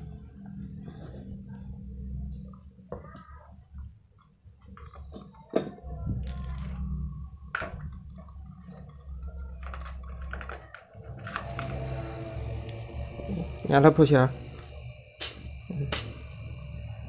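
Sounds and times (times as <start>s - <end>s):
compressor humming: 11.0s - 17.0s.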